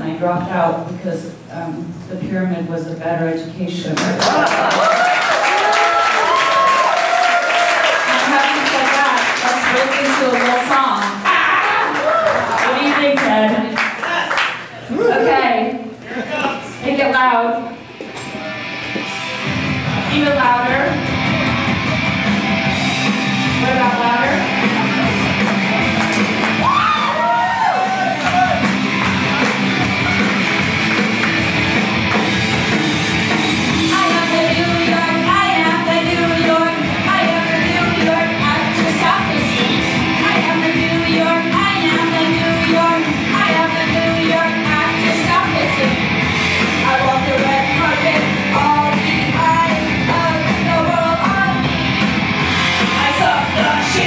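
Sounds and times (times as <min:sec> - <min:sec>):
loud rock music: 0:17.8 - 0:54.0
woman singing into microphone: 0:33.8 - 0:46.0, 0:46.8 - 0:51.7, 0:53.0 - 0:54.0.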